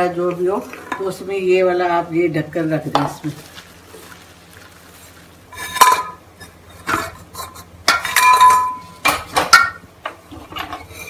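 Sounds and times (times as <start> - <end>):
steel cookware clanking: 5.5 - 9.8.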